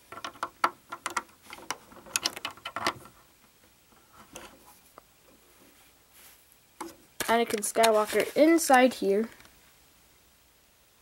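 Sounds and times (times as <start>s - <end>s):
plastic bricks clicking and rattling: 0.1s - 3.2s.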